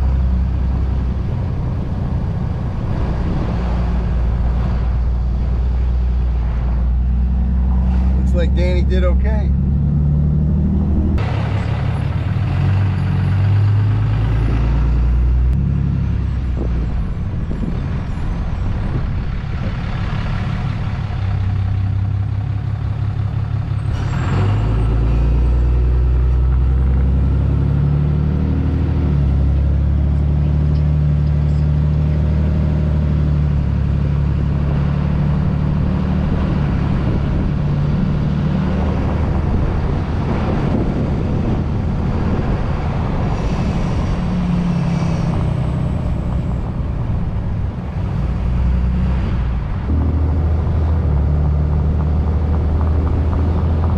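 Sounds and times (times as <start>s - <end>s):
road noise: 0.0s - 53.9s
truck engine hum: 0.0s - 53.9s.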